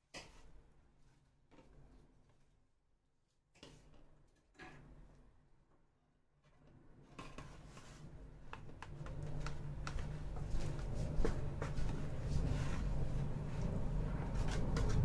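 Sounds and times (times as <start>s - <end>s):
low steady hum: 7.1s - 15.0s.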